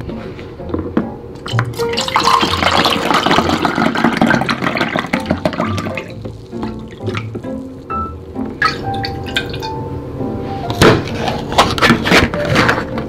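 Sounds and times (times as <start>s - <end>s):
background music: 0.0s - 13.0s
liquid pouring into cup: 1.5s - 7.4s.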